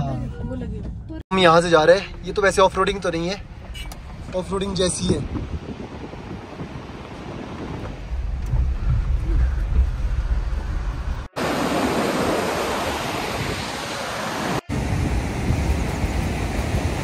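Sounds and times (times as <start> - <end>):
river rushing over rocks: 11.4 - 17.0.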